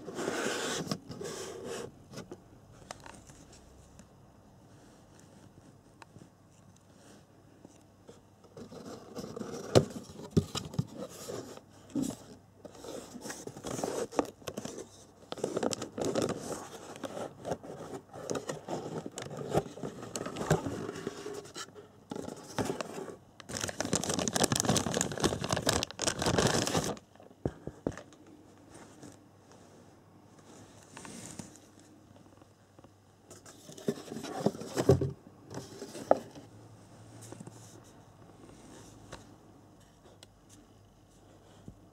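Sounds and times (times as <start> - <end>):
plastic bag crinkling: 23.4 - 27.1.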